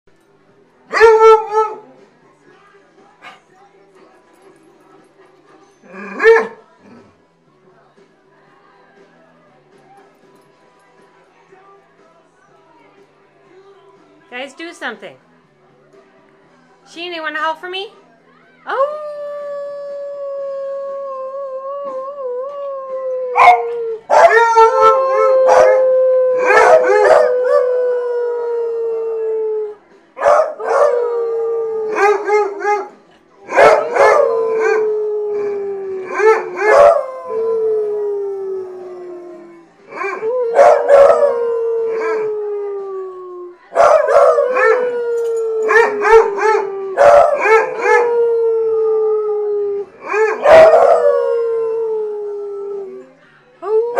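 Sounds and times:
dogs howling: 0:18.8 - 0:53.9.

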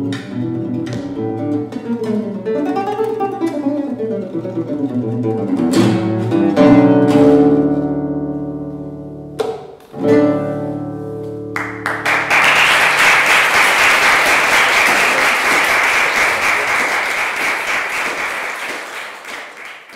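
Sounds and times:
audience applause: 0:11.6 - 0:19.9.

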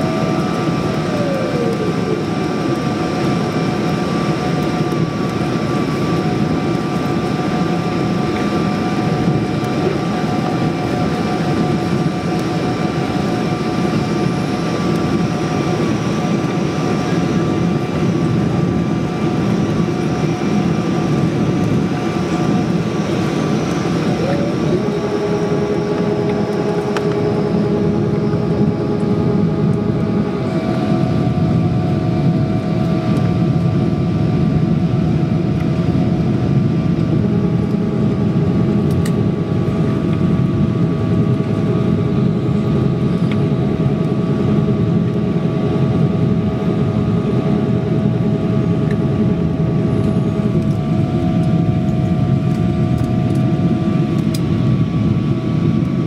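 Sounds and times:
whining engine tones: 0:00.0 - 0:33.4
jet engine and airflow roar: 0:00.0 - 0:56.0.

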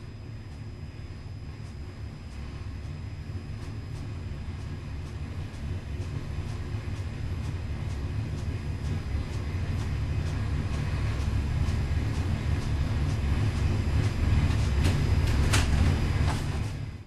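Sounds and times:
engine deep rumble: 0:00.0 - 0:17.0.

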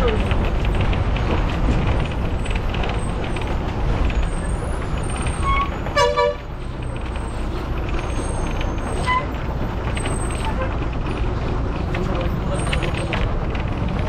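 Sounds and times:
bus rumbling and rattling on gravel: 0:00.0 - 0:14.0
vehicle horn toot: 0:05.4 - 0:06.5.

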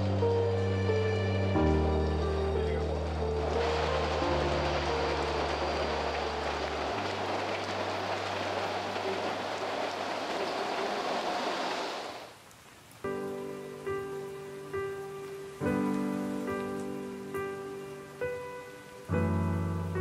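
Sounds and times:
spaced musical notes: 0:00.0 - 0:07.6
low sustained music tones: 0:00.0 - 0:10.0
rain hissing: 0:00.0 - 0:20.0.

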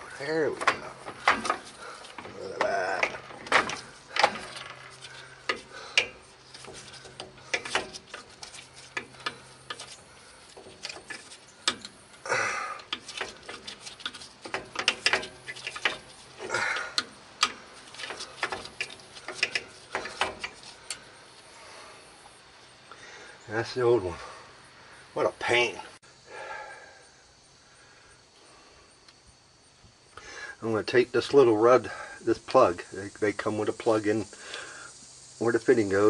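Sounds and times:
metal scraping: 0:00.0 - 0:22.3
hand tools clicking on metal: 0:00.1 - 0:21.1.

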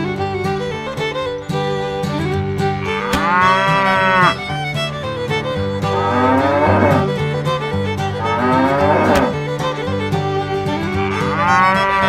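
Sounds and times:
cheerful fiddle music: 0:00.0 - 0:12.0
cow mooing: 0:02.9 - 0:04.3, 0:05.9 - 0:07.1, 0:08.2 - 0:09.3, 0:11.0 - 0:12.0.

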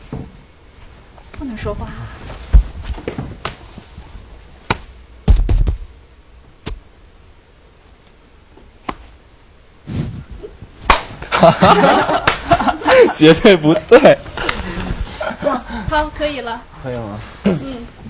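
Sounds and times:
people laughing: 0:11.2 - 0:15.9.

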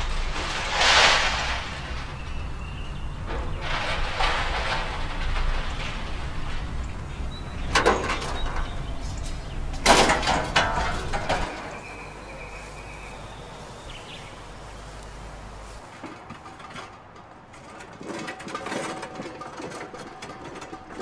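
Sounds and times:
deep rumble: 0:00.0 - 0:15.8.

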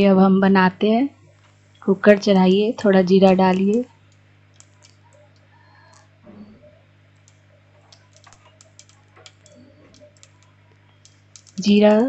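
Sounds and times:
seeds crackling in hot oil: 0:01.3 - 0:06.2, 0:07.0 - 0:12.0.

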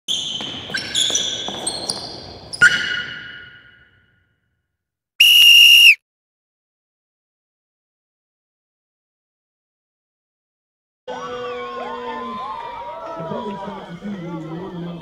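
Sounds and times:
whistle blast: 0:05.2 - 0:06.0.

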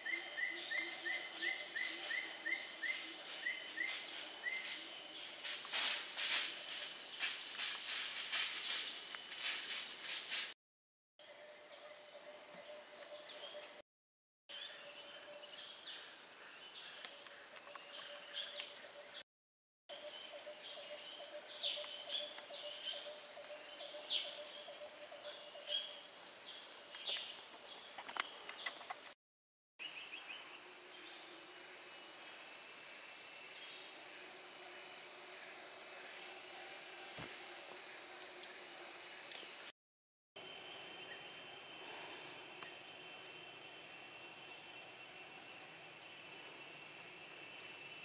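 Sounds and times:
high-pitched insect drone: 0:00.0 - 0:08.9, 0:30.2 - 0:39.7, 0:40.4 - 0:48.0.

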